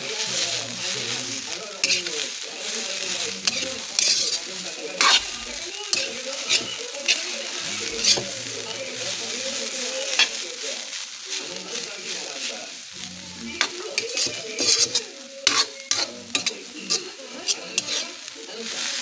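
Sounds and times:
bamboo shoots sizzling in wok: 0.0 - 19.0
metal ladle scraping wok: 0.3 - 2.1, 3.2 - 10.4, 13.1 - 18.3.

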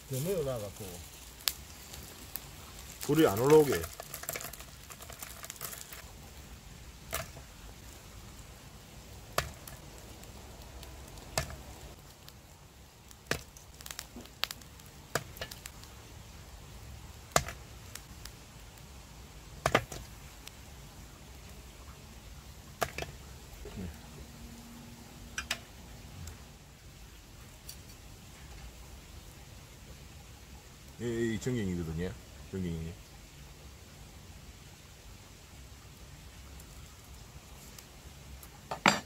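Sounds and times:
chestnut shells cracking: 1.4 - 6.1.

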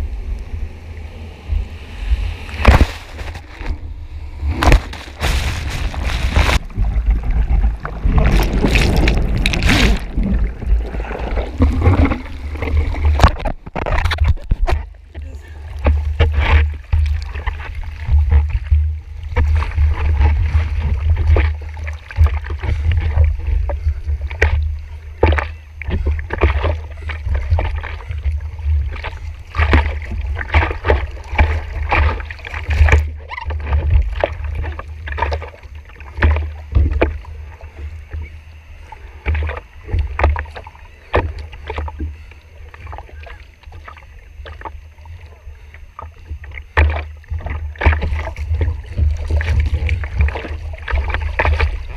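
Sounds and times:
steady low rumble: 0.0 - 51.9
water splashing against surfboard: 2.1 - 51.9
hands paddling in water: 4.6 - 14.8, 46.0 - 51.9.

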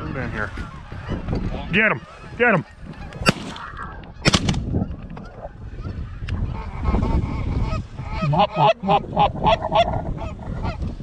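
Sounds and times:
wind buffeting microphone: 0.0 - 11.0
geese honking: 5.3 - 10.8.

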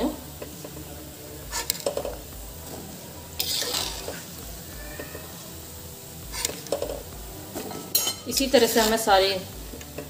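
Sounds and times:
food sizzling in hot oil: 0.0 - 10.0
metal skimmer scraping a pan: 1.4 - 2.2, 3.4 - 5.4, 6.3 - 9.1.

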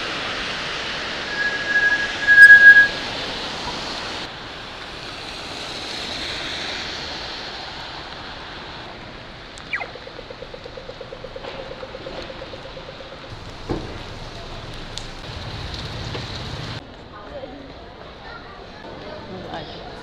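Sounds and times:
high-pitched squeal: 0.9 - 3.3
falling tone turning to pulsing: 1.1 - 3.0.

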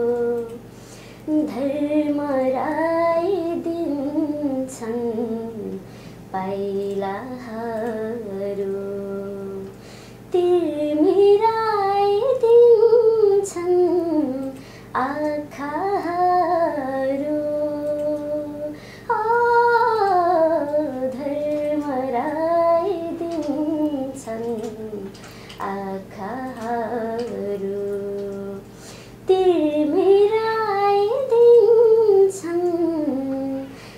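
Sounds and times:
woman singing unaccompanied: 0.0 - 33.9
singer breathing: 0.7 - 1.2, 5.8 - 6.3, 9.8 - 10.2, 14.6 - 14.9, 18.8 - 19.1, 25.2 - 25.6, 28.7 - 29.2, 33.7 - 33.9.

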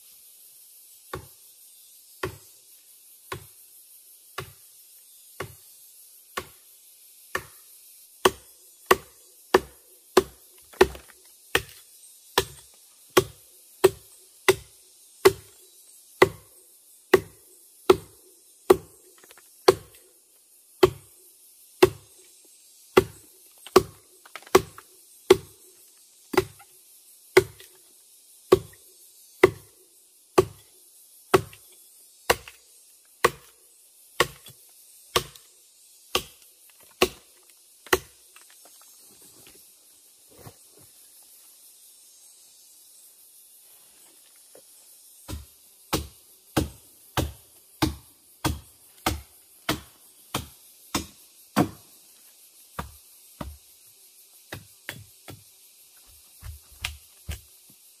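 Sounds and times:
wood chopping strikes: 7.3 - 7.6, 8.2 - 11.8, 12.4 - 12.6, 17.1 - 20.0, 23.0 - 25.5, 26.3 - 26.7, 32.3 - 32.6, 34.2 - 35.4, 36.1 - 38.5, 45.3 - 51.8, 52.8 - 53.6, 54.5 - 55.4, 56.4 - 57.5.

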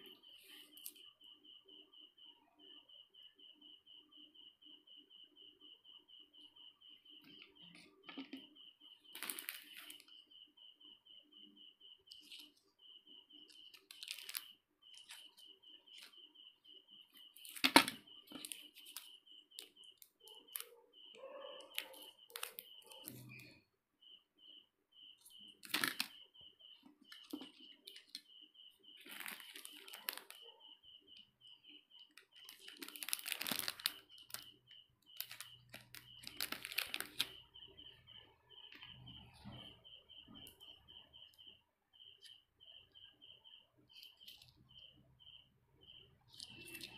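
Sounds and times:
rapidly pulsing high chirp: 0.0 - 46.9
plastic wrappers crinkling: 9.1 - 10.0, 13.6 - 15.2, 29.0 - 30.4, 32.2 - 34.5, 35.1 - 37.3.

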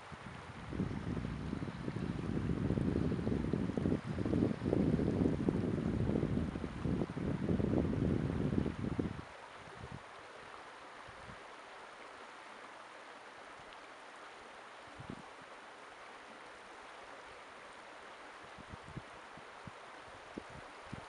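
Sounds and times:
wind puffs on microphone: 0.0 - 10.1, 15.0 - 15.3, 18.5 - 21.0
creek flowing over rocks: 0.0 - 21.0.

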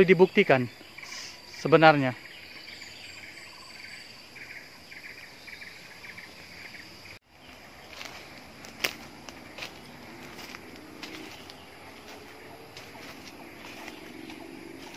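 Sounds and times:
insects droning and chirping: 0.0 - 14.9
footsteps crunching on dry leaves: 7.2 - 14.9
twig snap: 8.6 - 9.1.

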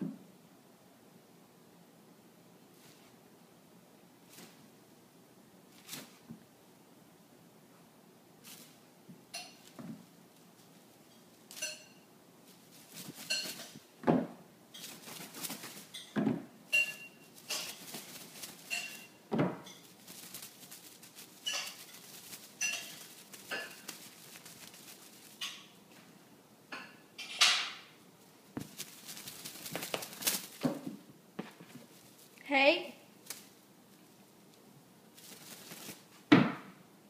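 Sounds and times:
light metallic clinks and jingles: 11.1 - 12.0, 15.8 - 20.1, 21.4 - 25.6.

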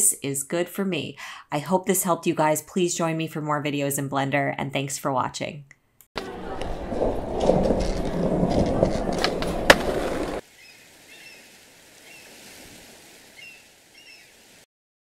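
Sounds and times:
skateboard clacks: 6.2 - 10.4
skateboard wheels rolling: 6.2 - 10.4.

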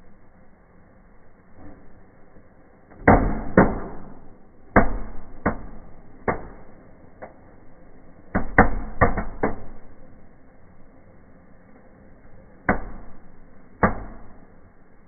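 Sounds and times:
small fireworks bangs: 3.0 - 7.4, 8.3 - 10.0.

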